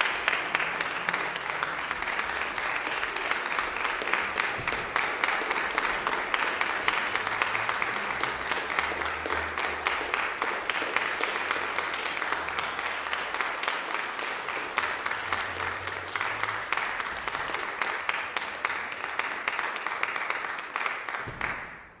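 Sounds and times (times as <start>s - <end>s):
audience applauding: 0.0s - 22.0s.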